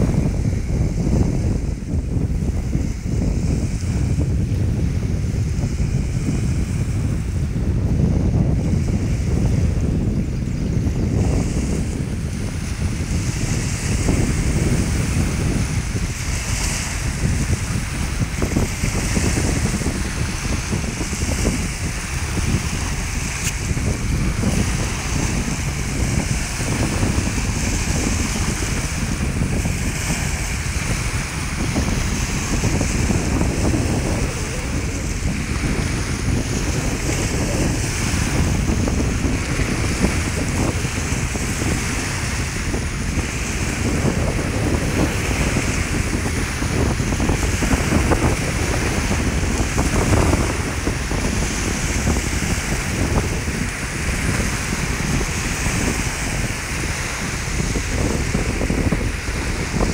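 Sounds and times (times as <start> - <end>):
waves breaking on sandy beach: 0.0 - 59.9
wind rumbling on microphone: 0.0 - 59.9.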